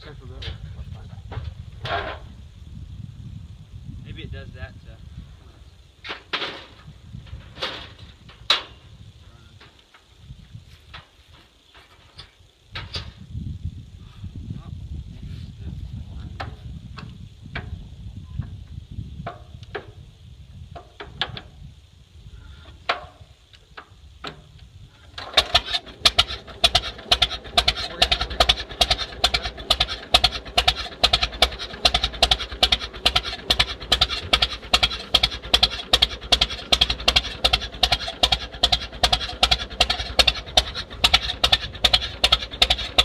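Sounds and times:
tractor engine running: 22.8s - 43.0s
tractor being hand-cranked: 25.1s - 43.0s.

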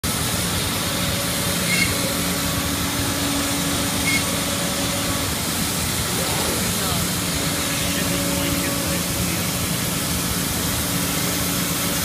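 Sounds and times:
cnc router running: 0.1s - 12.0s.

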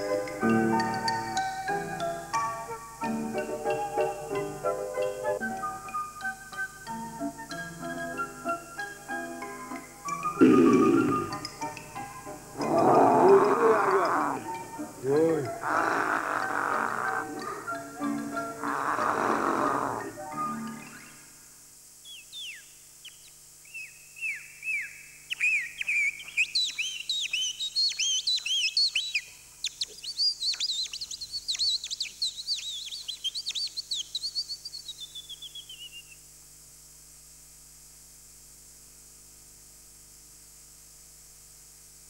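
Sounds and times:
faint steady hum: 0.0s - 42.0s
bird-like chirping song: 20.3s - 21.3s, 22.0s - 36.2s.

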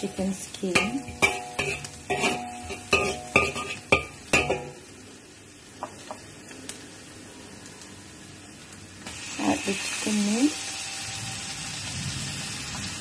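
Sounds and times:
food sizzling: 0.0s - 13.0s
metal spatula scraping a wok: 0.1s - 4.8s.

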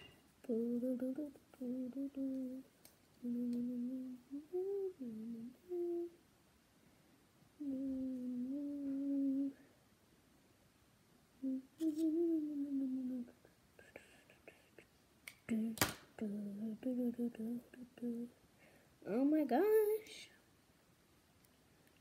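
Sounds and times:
person humming: 0.0s - 6.2s, 7.6s - 9.7s, 11.4s - 18.4s.

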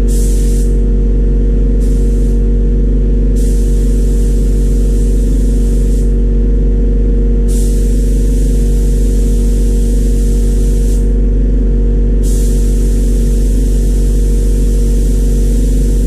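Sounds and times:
loud machine hum: 0.0s - 16.0s
spray gun hissing: 1.8s - 2.4s, 3.4s - 6.1s, 7.5s - 11.1s, 12.2s - 16.0s.

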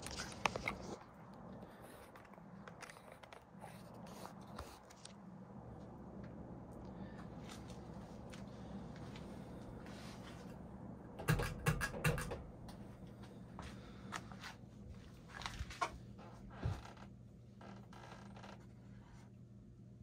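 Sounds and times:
ceiling fan low hum: 0.0s - 20.0s.

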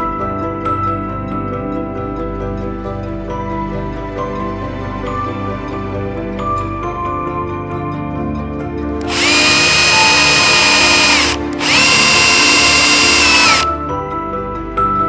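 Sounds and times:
cordless drill whining: 9.0s - 13.7s.

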